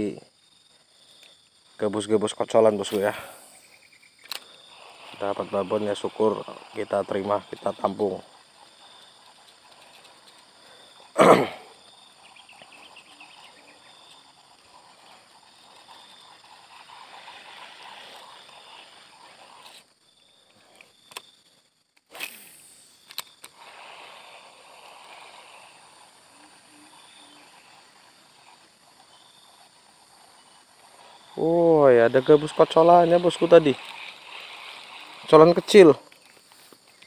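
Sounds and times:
sharp clicks: 0:04.2 - 0:04.6, 0:21.9 - 0:23.6.

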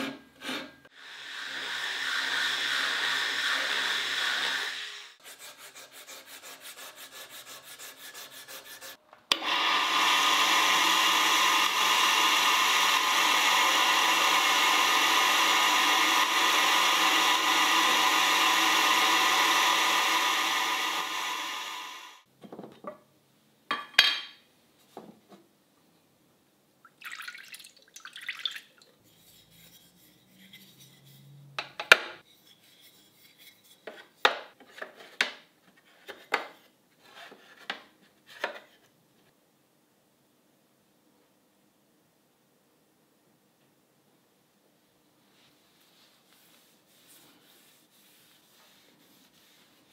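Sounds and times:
router spindle milling wood: 0:01.0 - 0:05.1, 0:09.3 - 0:22.2
electric sander on wood: 0:01.0 - 0:05.2, 0:09.4 - 0:22.2
rhythmic rubbing strokes: 0:46.0 - 0:49.9.

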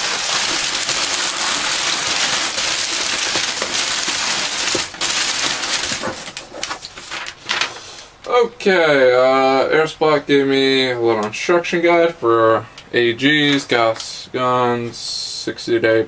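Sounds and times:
packing paper rustling and crackling: 0:00.0 - 0:08.1.

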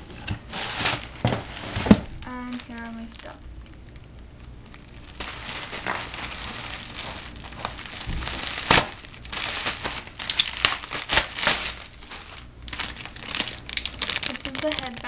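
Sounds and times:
bubble wrap crackling: 0:00.0 - 0:15.0.

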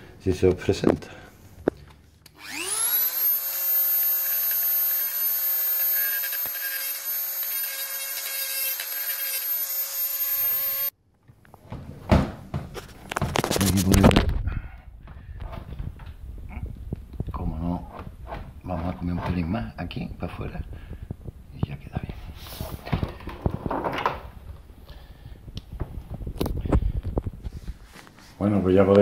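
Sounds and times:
rotary tool grinding whine: 0:02.3 - 0:10.9.

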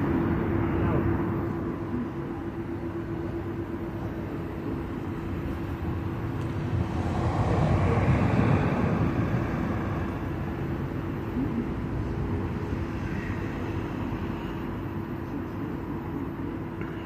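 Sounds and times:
street traffic rumble: 0:00.0 - 0:17.0
vehicle passing: 0:05.9 - 0:14.1.

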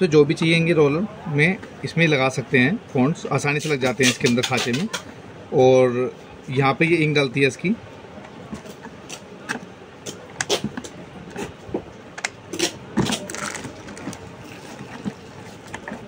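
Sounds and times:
packaging rustling: 0:13.0 - 0:16.0.

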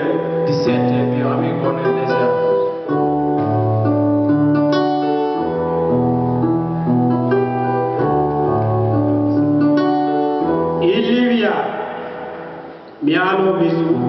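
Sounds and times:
slow piano music: 0:00.0 - 0:14.0.

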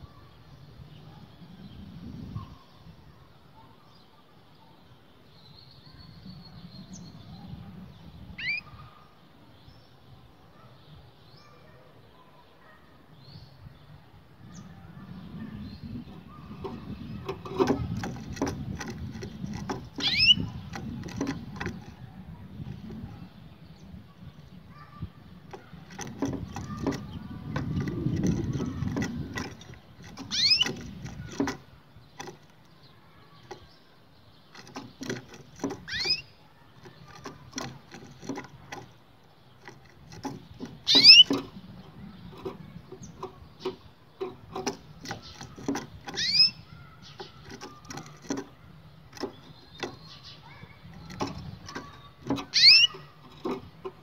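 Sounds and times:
canary chirps: 0:08.2 - 0:09.2, 0:14.5 - 0:54.0
bird feet tapping on cage: 0:16.0 - 0:23.1, 0:25.3 - 0:32.7, 0:34.4 - 0:54.0.

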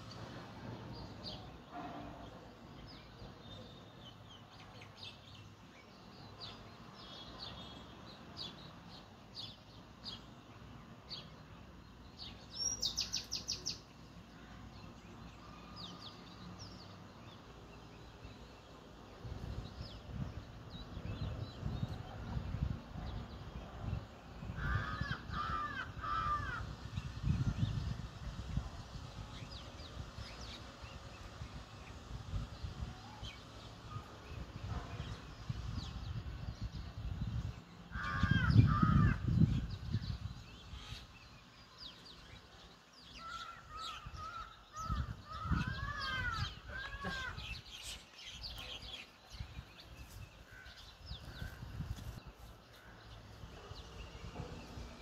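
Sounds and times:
sparrows chirping: 0:00.0 - 0:55.0
bird arched calls: 0:43.1 - 0:48.8.

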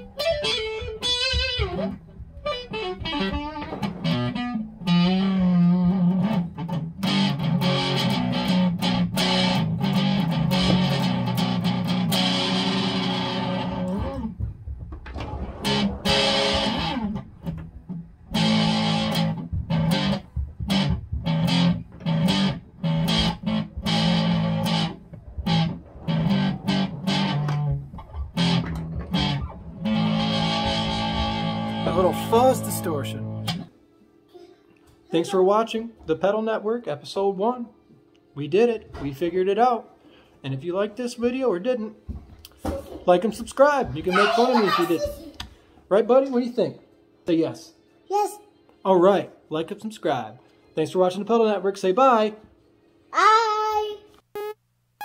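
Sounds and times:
fuzz electric guitar: 0:00.0 - 0:14.4, 0:15.6 - 0:33.7.

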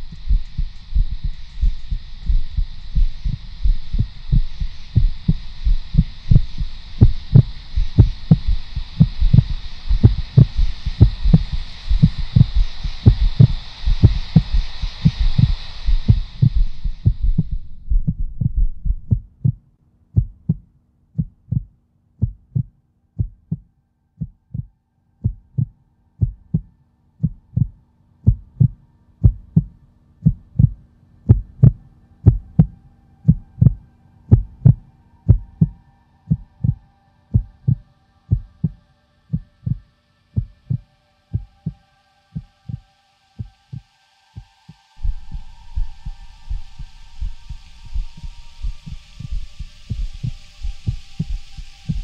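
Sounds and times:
higher held tones: 0:00.0 - 0:19.1, 0:45.0 - 0:52.0
low held tone: 0:00.0 - 0:19.6, 0:24.2 - 0:52.0
deep heartbeat-like thumps: 0:00.0 - 0:39.8, 0:40.4 - 0:41.8, 0:45.0 - 0:52.0.

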